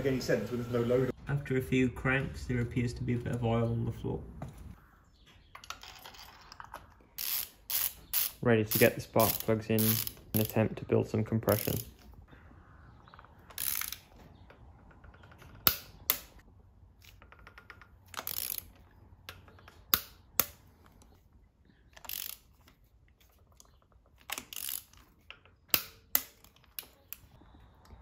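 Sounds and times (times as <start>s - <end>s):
ratchet wrench clicking: 7.2s - 10.6s, 11.5s - 11.9s, 13.5s - 14.0s, 17.2s - 18.7s, 22.0s - 22.5s, 24.3s - 27.2s
sharp metal clicks: 13.1s - 21.2s, 23.6s - 27.4s.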